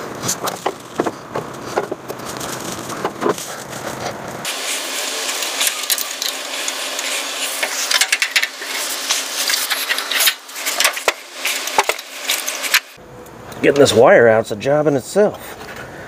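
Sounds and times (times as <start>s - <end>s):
locking wire scraping against metal: 5.2s - 13.0s
hand tools clicking: 5.3s - 13.0s.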